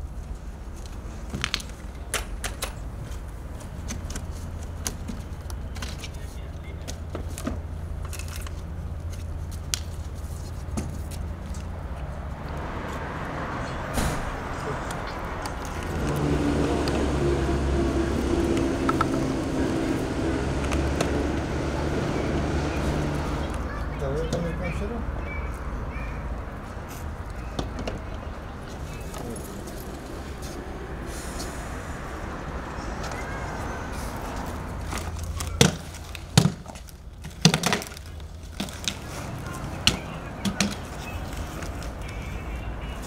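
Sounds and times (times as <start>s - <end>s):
low engine drone: 13.8s - 23.6s.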